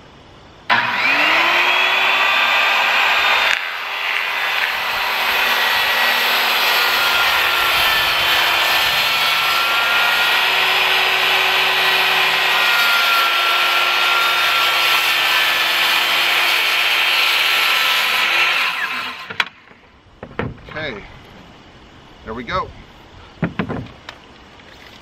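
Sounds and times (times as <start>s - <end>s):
circular saw cutting wood: 0.7s - 19.5s.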